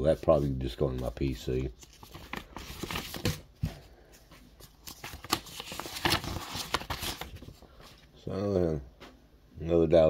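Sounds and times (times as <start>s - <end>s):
paper envelope rustling: 0.2s - 8.1s.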